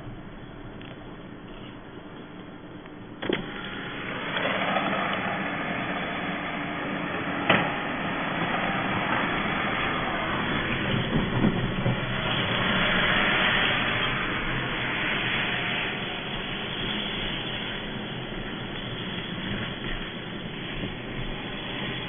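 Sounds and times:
car driving through water: 3.4 - 20.0.

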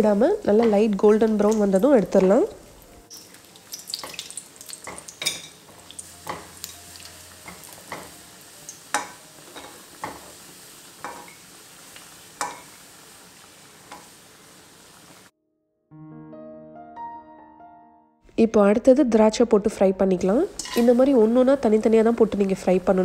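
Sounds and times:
nuts sizzling in a pan: 0.0 - 15.3, 20.4 - 23.0
spatula scraping a pan: 20.6 - 21.1.

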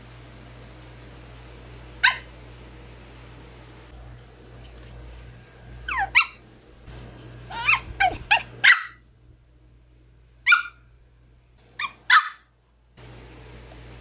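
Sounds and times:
small dog yapping: 2.0 - 2.3, 5.9 - 6.4, 7.5 - 9.0, 10.5 - 10.8, 11.8 - 12.5.

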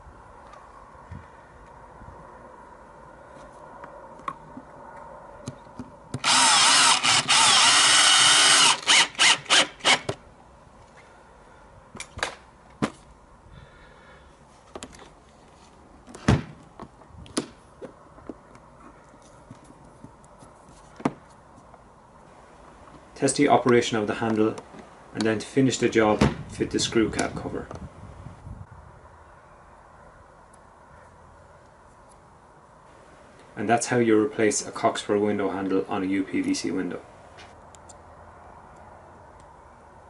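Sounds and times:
cordless drill driving screw: 6.2 - 10.2.

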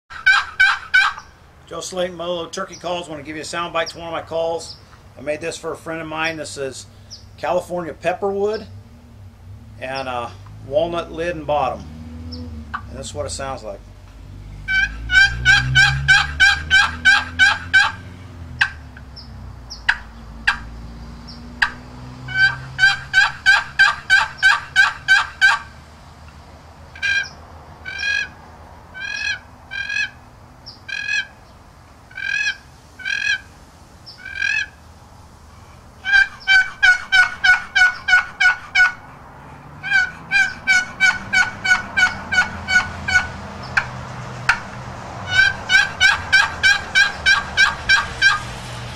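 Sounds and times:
box turkey call yelping: 0.1 - 1.4, 14.6 - 20.8, 21.6 - 25.8, 27.0 - 31.4, 32.1 - 34.8, 36.0 - 39.2, 39.8 - 43.9, 44.5 - 48.5.

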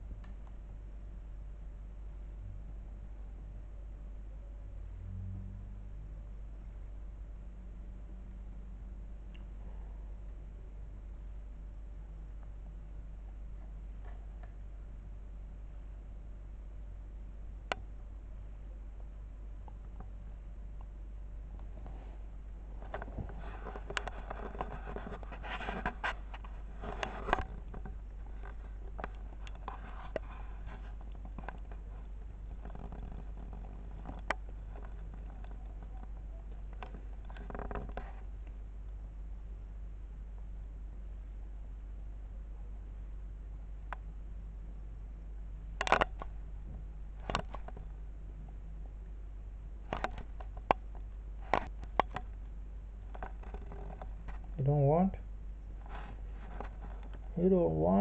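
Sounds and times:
steady low hum: 0.0 - 58.0
light clicks and taps: 22.8 - 39.0.

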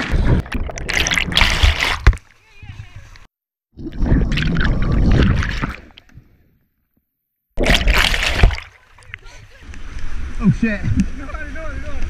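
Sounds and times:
underwater river rushing: 0.0 - 2.4, 3.8 - 6.4, 7.6 - 11.9.

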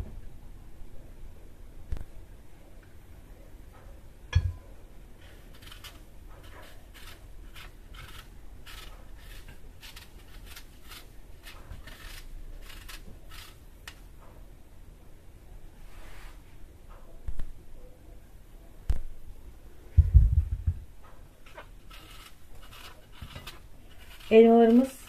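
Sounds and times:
knife paring apple skin: 5.2 - 14.0, 21.5 - 25.0
thump: 20.0 - 20.8.

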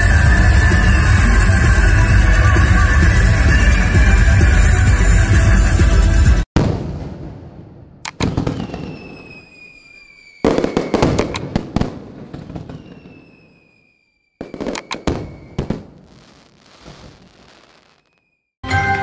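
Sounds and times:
fireworks bangs and crackling: 6.6 - 18.4
whistle falling in pitch: 8.6 - 11.2.

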